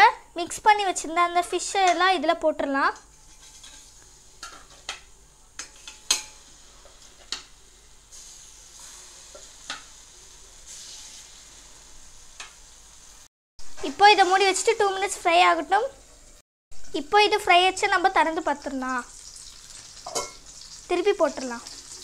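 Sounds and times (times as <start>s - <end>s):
spoon scraping a griddle: 3.1s - 5.0s
fish sizzling in hot oil: 3.1s - 22.0s.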